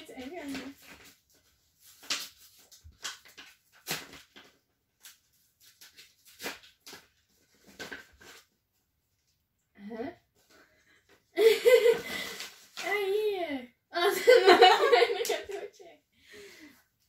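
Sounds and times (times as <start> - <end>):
paper packet tearing and crinkling: 0.1 - 8.5.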